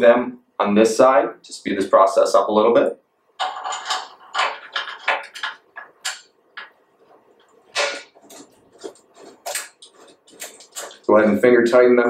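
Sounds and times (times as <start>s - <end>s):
bolts clinking on metal frame: 3.4s - 6.7s.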